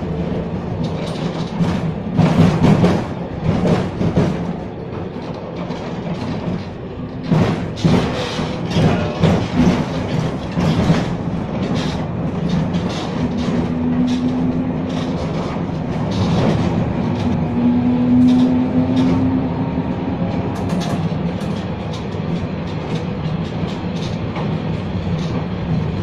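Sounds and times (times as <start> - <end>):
tram wheels rumbling on rails: 0.0 - 26.0.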